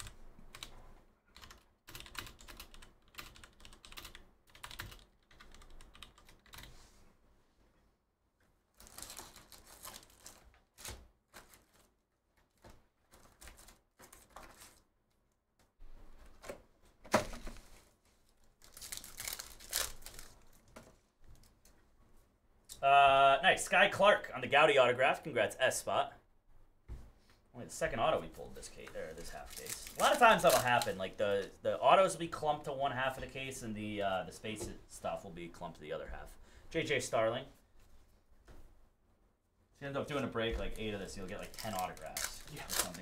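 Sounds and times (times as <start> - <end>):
foil packs rustling: 8.8 - 12.0, 18.5 - 20.8, 29.2 - 31.0, 41.2 - 43.0.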